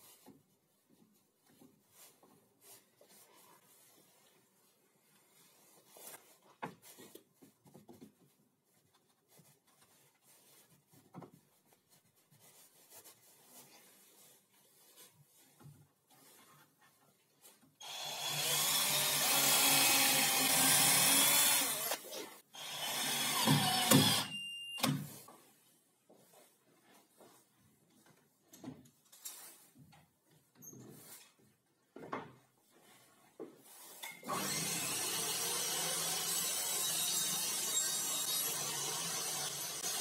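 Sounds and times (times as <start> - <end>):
cordless drill running: 17.8 - 22.0, 22.6 - 24.4, 34.2 - 40.0.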